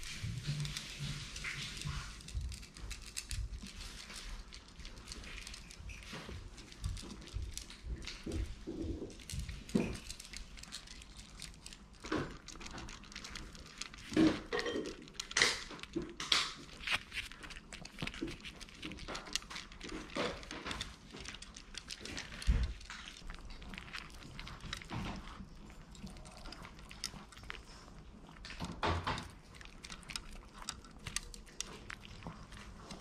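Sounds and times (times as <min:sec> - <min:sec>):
dogs crunching kibble: 0:00.0 - 0:33.0.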